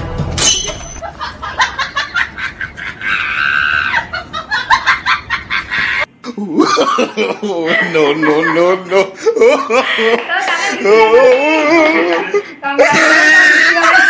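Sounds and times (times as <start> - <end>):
woman squealing: 3.0 - 4.1, 12.7 - 14.0
woman giggling: 3.9 - 14.0.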